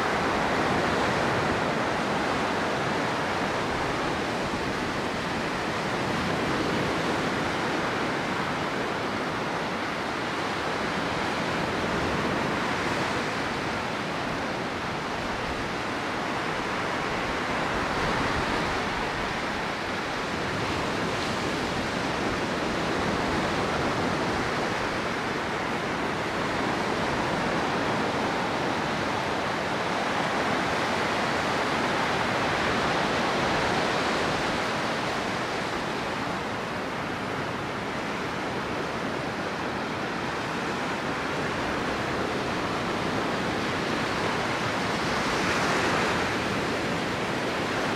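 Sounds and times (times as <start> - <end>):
surf washing up a beach: 0.0 - 47.9.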